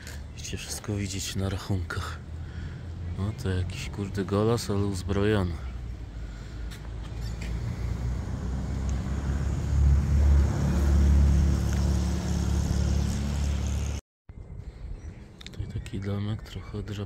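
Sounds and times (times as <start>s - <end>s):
vehicle engine rumble passing: 2.0s - 14.0s.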